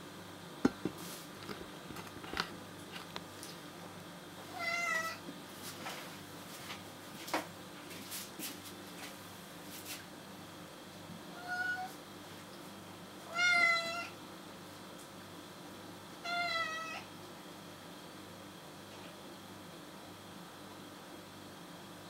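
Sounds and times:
kitten meowing: 16.2s - 17.0s.

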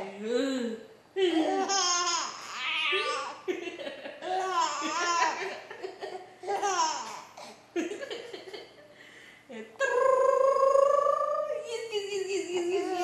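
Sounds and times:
baby laughing: 1.3s - 3.5s, 4.2s - 7.6s.

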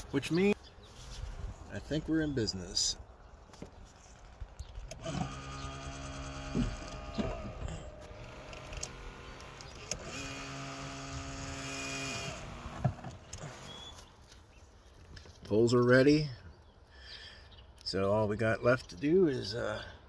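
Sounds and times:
hydraulic pump whining: 4.9s - 14.0s.

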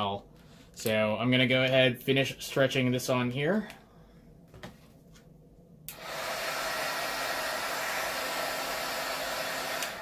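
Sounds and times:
heat gun blowing: 5.9s - 10.0s.

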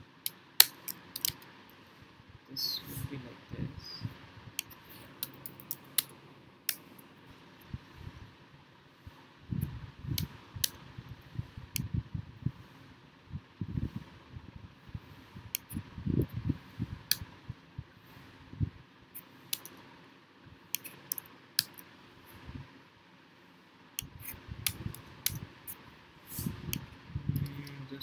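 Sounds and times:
soft low thumps: 9.0s - 18.8s.

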